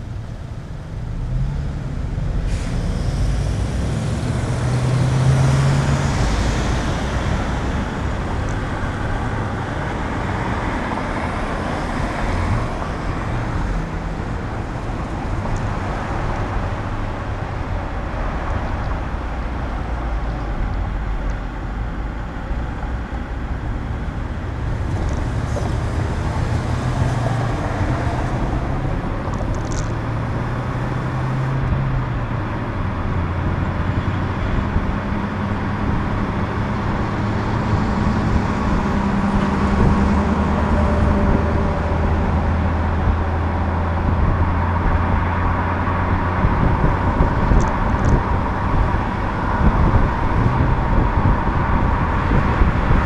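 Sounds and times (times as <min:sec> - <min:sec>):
car engine and road noise: 0:00.0 - 0:53.0.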